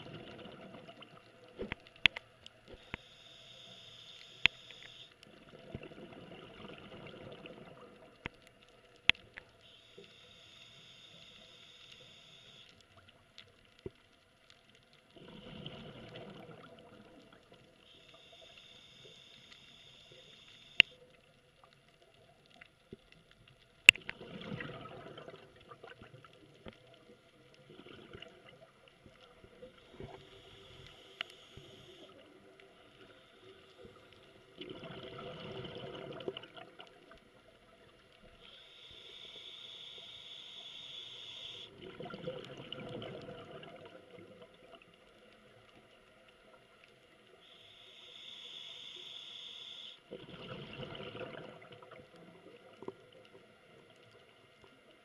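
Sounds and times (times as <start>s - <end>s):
exhaled bubbles rumbling: 0.0s - 1.8s, 5.3s - 8.2s, 15.1s - 17.6s, 24.0s - 30.2s, 33.8s - 38.0s, 41.7s - 45.0s, 50.1s - 53.9s
regulator inhale hiss: 2.8s - 5.2s, 9.6s - 12.8s, 17.8s - 21.0s, 29.8s - 32.2s, 38.4s - 41.7s, 47.4s - 50.1s.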